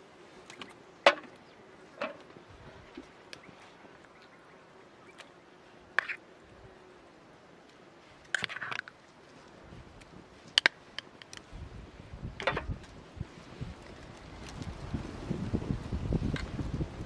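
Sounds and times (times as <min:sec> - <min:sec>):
fly buzzing: 0:00.3 - 0:09.1.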